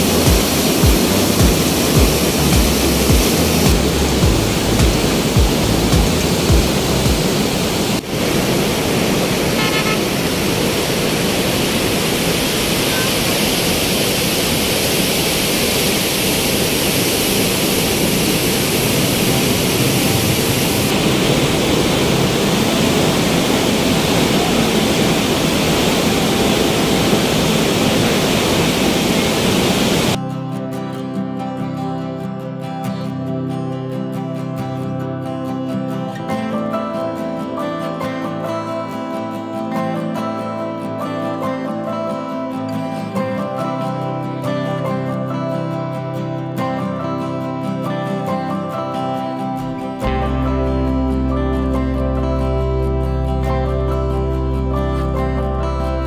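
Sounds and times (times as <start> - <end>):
floodwater rushing: 0.0 - 30.2
faint horn toot: 9.6 - 10.2.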